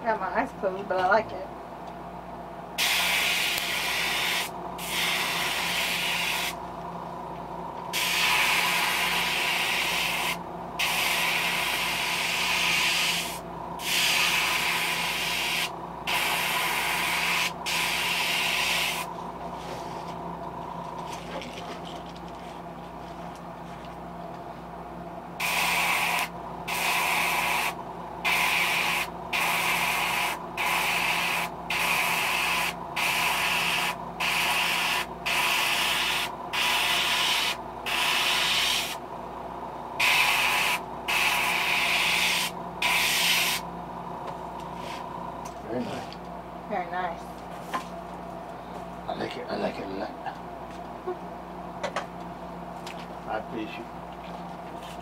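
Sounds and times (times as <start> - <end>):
steady low hum: 0.0 - 55.0
airbrush hissing bursts: 2.8 - 6.6, 7.9 - 19.1, 25.4 - 39.0, 40.0 - 43.6.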